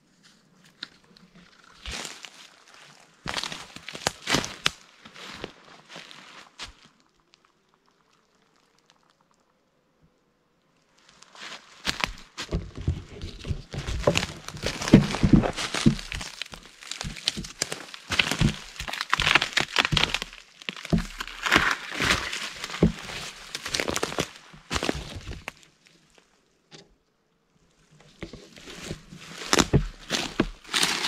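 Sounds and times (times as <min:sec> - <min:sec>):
dry twigs snapping and rustling: 0:00.7 - 0:05.5, 0:11.8 - 0:25.8, 0:28.1 - 0:31.0
dull knocks: 0:12.4 - 0:16.3.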